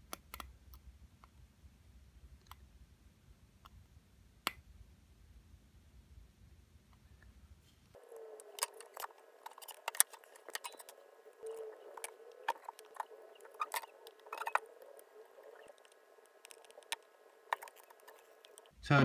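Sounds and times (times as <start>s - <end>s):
faint steady hum: 0.0s - 19.0s
soldering iron tapping circuit board: 8.0s - 18.7s.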